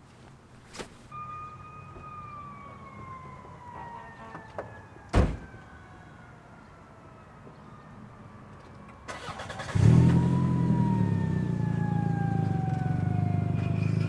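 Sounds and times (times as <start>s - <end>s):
siren tone falling in pitch: 1.1s - 6.3s, 9.7s - 14.0s
car door shutting with thud: 5.2s - 5.4s.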